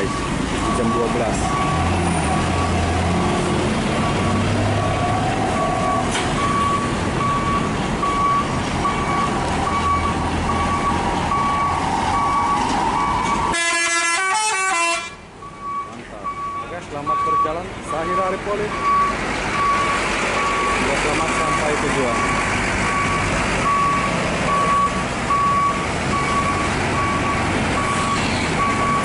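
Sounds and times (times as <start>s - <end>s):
electronic warning beeper: 0.0s - 1.9s
bus engine running: 0.0s - 16.6s, 17.6s - 29.0s
musical bus horn tune: 13.5s - 15.2s.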